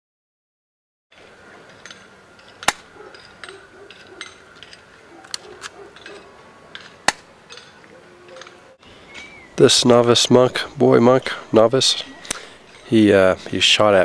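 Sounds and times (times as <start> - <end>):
pellet gun cracks: 7.0 - 7.3.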